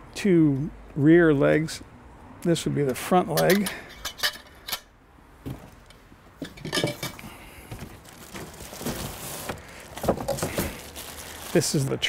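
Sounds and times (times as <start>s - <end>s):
metal grill legs clinking: 3.3s - 4.9s, 6.4s - 7.2s
plastic bag rustling: 6.7s - 12.0s.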